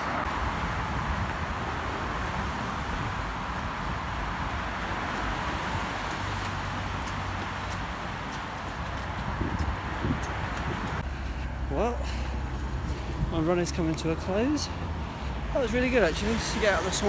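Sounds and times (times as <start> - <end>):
steady rushing outdoor noise: 0.0 - 17.0.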